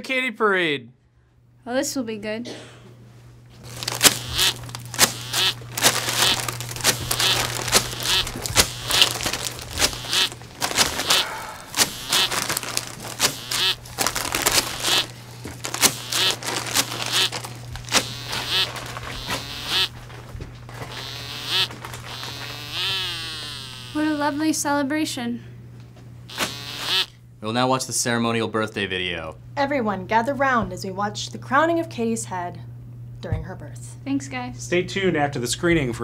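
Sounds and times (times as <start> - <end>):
low steady hum: 0.9 - 34.7
party blowers: 3.6 - 20.0, 20.8 - 24.4, 26.3 - 27.2.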